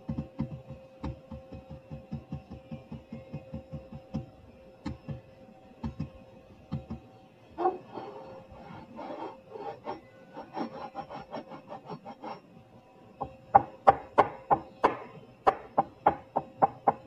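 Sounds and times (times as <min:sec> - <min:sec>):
short scraping strokes: 0:07.6 - 0:12.5.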